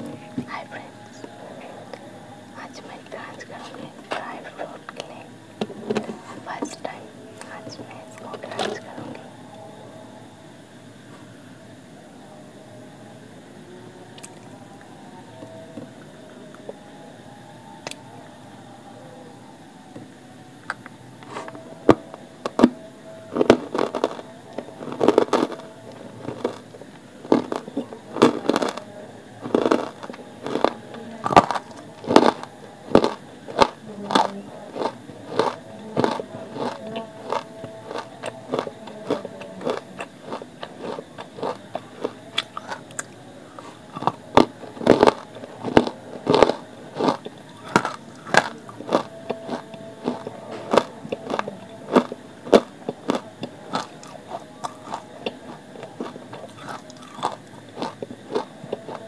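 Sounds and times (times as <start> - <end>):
person crunching on clay: 56.0 - 59.0.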